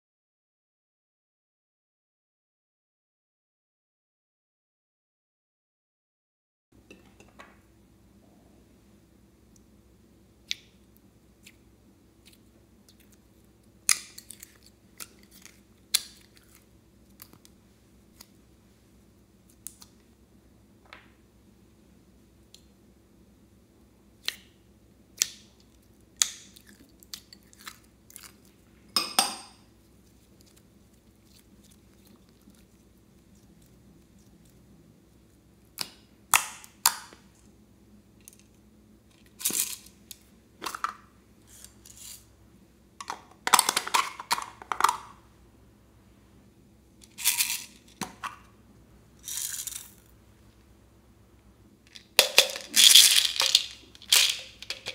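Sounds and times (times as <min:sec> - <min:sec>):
plastic bowls tapping and clicking: 0:43.0 - 0:45.2, 0:52.0 - 0:54.9
plastic containers clinking: 0:51.9 - 0:54.9.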